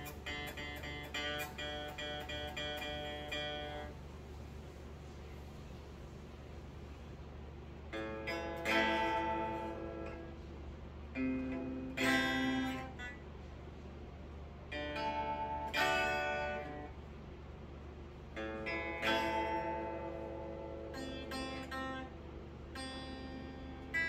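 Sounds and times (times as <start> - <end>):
electric guitar chords strummed: 0.0 - 4.0, 7.8 - 13.4, 14.6 - 17.0, 18.3 - 24.0
steady low hum: 0.0 - 24.0.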